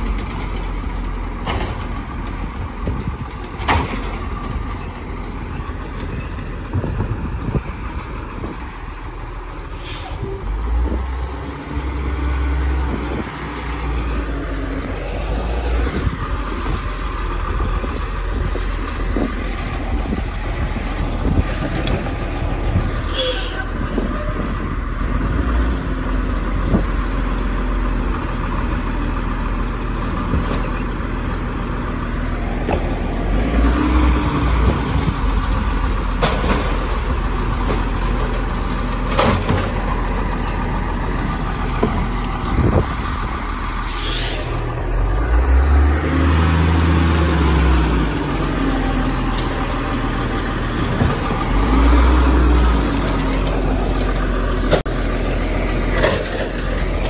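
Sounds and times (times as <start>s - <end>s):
diesel engine revving: 0.0s - 57.0s.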